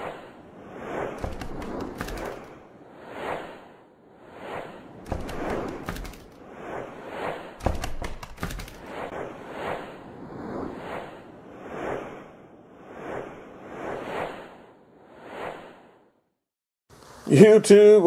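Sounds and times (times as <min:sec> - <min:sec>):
whooshes: 0:00.0 - 0:16.2
sharp clicks: 0:01.2 - 0:02.5, 0:05.1 - 0:06.4, 0:07.6 - 0:08.9.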